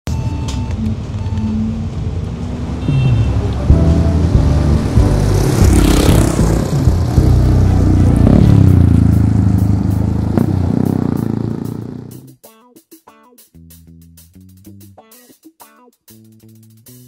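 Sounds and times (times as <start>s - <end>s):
deep bass intro music: 0.1s - 12.4s.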